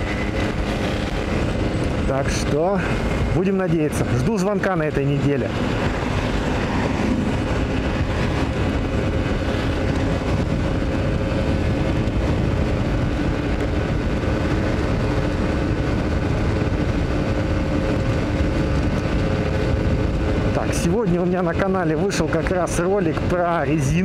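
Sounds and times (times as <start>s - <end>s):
scooter engine droning: 0.0s - 3.4s, 5.4s - 20.6s
wind rush: 0.0s - 24.0s.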